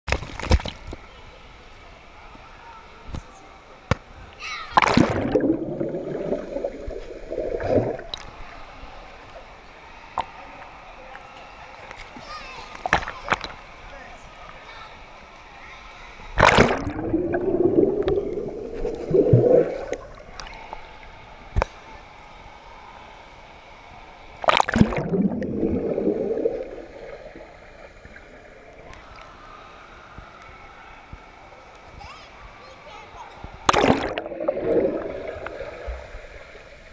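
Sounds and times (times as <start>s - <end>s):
churning gurgling water: 4.5s - 8.5s, 16.4s - 22.0s, 24.3s - 29.3s, 32.6s - 36.9s
sharp splash into pool: 4.7s - 8.3s, 16.4s - 20.1s, 33.6s - 36.0s.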